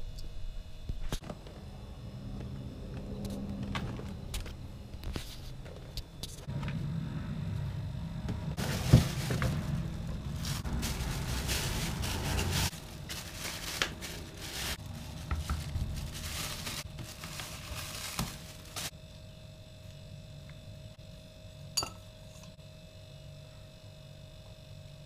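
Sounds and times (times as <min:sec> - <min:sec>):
plastic bag rustling: 0:08.6 - 0:18.9.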